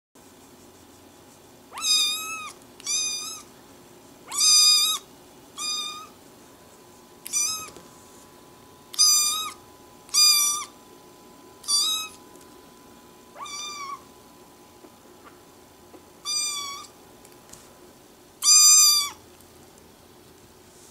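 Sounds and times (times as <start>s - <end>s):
kitten meowing: 1.7s - 3.5s, 4.3s - 6.2s, 7.3s - 7.8s, 8.9s - 10.7s, 11.6s - 12.2s, 13.4s - 14.0s, 16.2s - 16.9s, 18.4s - 19.2s.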